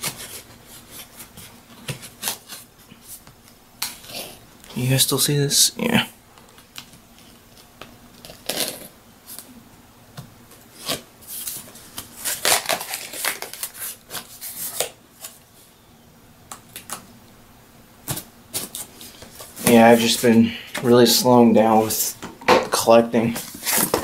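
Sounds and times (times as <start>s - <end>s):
blade slitting packing tape: 8.2s - 8.9s, 12.2s - 14.9s
cardboard scraping and rustling: 23.3s - 24.0s.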